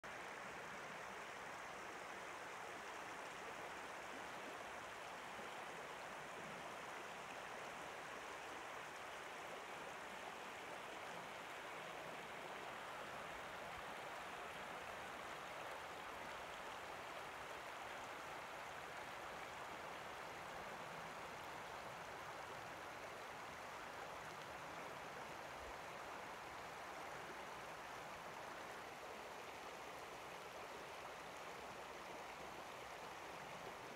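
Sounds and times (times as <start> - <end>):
river water rushing over cobbles: 0.1 - 33.9.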